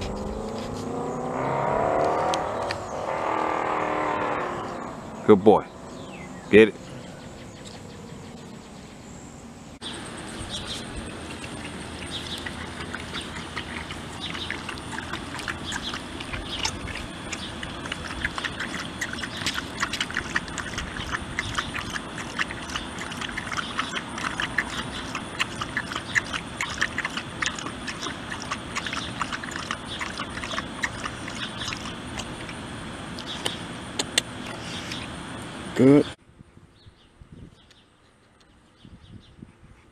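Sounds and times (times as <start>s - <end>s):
dog licking and lapping: 10.7s - 32.6s.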